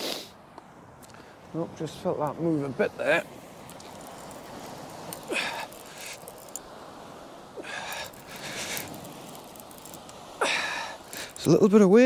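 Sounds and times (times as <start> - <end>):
wind and sea hiss: 0.0 - 12.0
man breathing hard: 5.3 - 6.3, 10.4 - 11.4.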